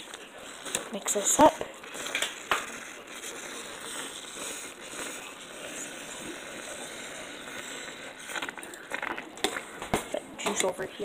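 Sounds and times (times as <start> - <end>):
spoon stirring meat in a pot: 0.0 - 10.8.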